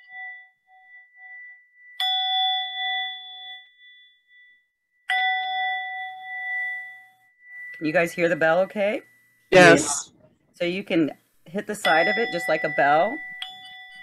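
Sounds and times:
singing bowl ringing: 0:00.0 - 0:08.2, 0:11.8 - 0:14.0.

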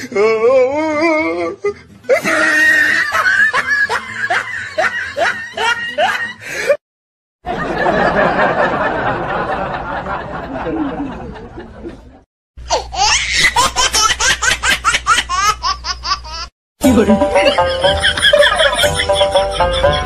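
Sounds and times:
loud rhythmic laugh: 0:02.1 - 0:06.8, 0:07.4 - 0:12.3, 0:13.4 - 0:20.0
burst of laughter: 0:17.5 - 0:20.0.

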